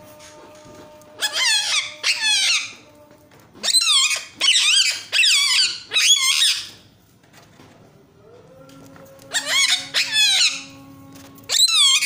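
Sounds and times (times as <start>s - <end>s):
parakeet calling: 1.2s - 2.8s, 3.6s - 6.8s, 9.3s - 10.7s, 11.5s - 12.0s.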